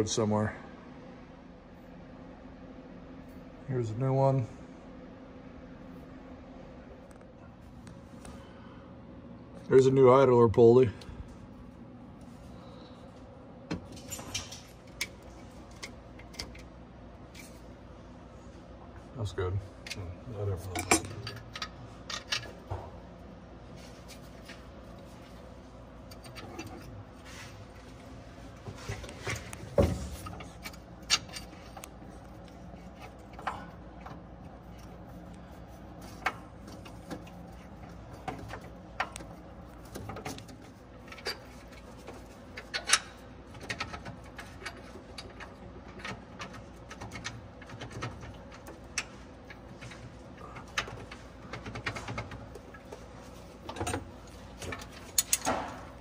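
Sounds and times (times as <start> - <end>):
faint steady hum: 0.0 - 56.0
metal tools clinking and knocking: 53.7 - 55.8.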